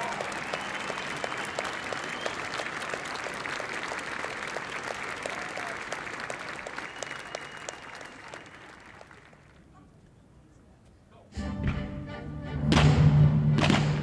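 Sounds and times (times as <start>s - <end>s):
audience applauding: 0.0s - 9.7s
high whistles: 0.4s - 2.6s, 6.6s - 8.5s.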